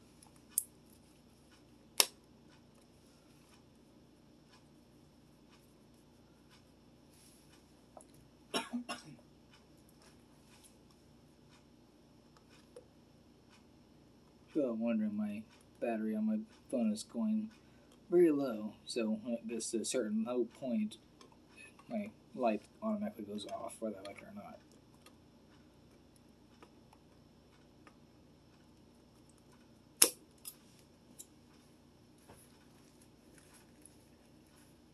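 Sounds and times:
person coughing: 8.5s - 9.2s.

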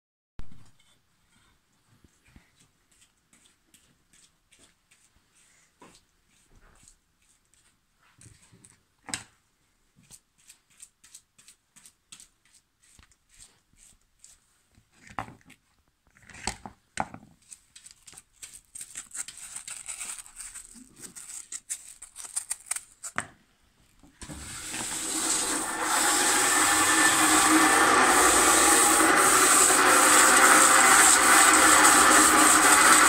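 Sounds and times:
rotary table motor running: 24.6s - 33.0s.

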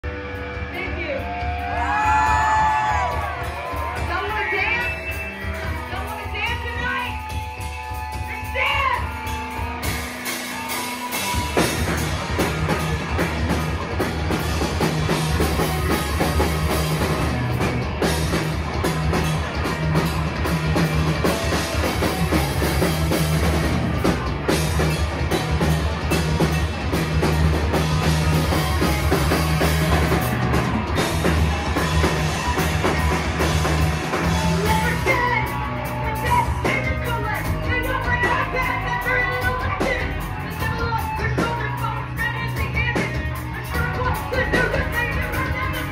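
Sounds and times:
live rock band playing: 0.0s - 45.9s.

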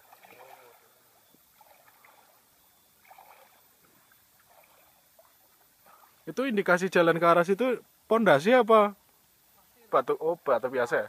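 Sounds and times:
person wading through water: 0.0s - 6.3s.

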